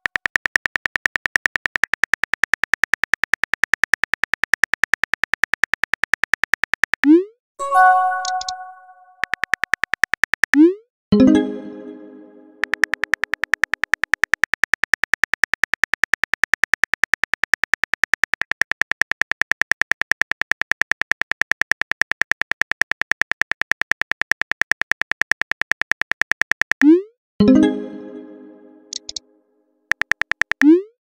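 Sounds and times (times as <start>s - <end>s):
bright chime: 7.6s - 9.2s, 11.2s - 12.6s, 27.4s - 29.0s
phone keyboard clicks: 12.6s - 26.8s, 29.9s - 30.7s.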